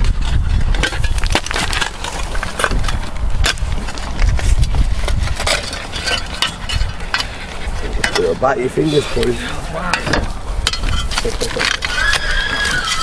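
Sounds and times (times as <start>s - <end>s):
wood cracking and snapping: 0.8s - 4.8s.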